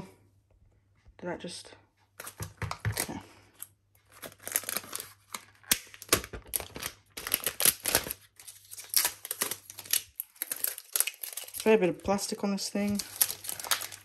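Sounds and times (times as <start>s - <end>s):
plastic film peeling and crackling: 4.0s - 14.0s.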